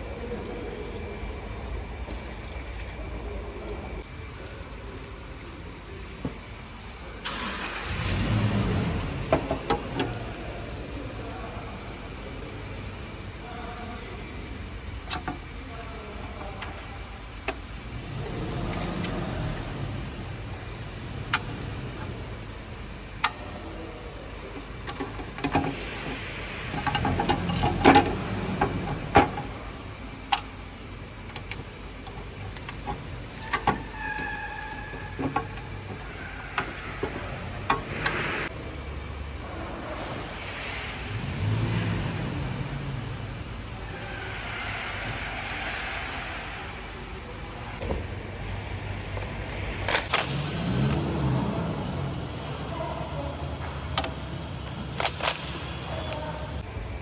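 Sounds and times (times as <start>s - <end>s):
low rumble of passing traffic: 0.0s - 57.0s.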